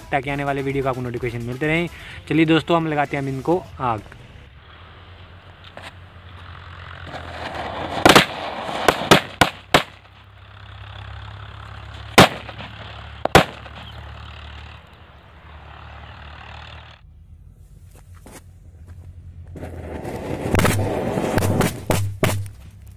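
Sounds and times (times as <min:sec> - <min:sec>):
firecracker bangs: 0:07.2 - 0:10.2, 0:12.1 - 0:14.0, 0:20.5 - 0:22.8
quick firecracker cracks: 0:07.9 - 0:10.2, 0:12.1 - 0:13.9.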